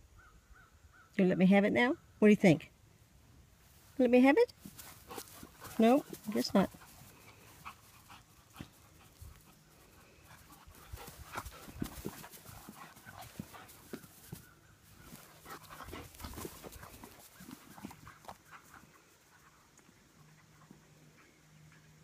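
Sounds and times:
dog panting: 4.7s - 21.4s.

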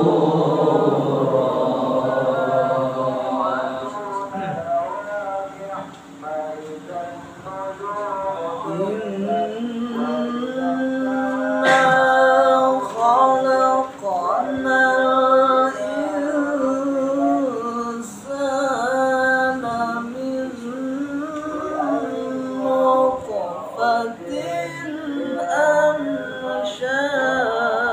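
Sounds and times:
man reciting melodically: 0.0s - 27.9s.

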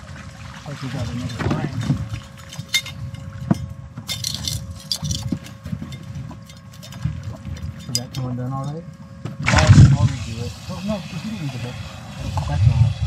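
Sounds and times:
knocks and splashes of fish handling: 0.0s - 8.4s
boat motor rumble: 0.0s - 13.0s
faint steady whine: 0.0s - 13.0s.

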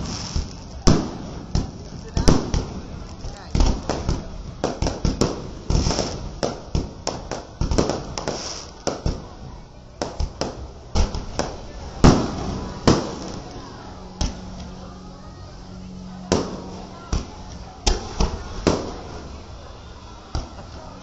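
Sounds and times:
aerial fireworks bangs: 0.0s - 9.4s, 10.0s - 13.6s, 16.3s - 19.4s.

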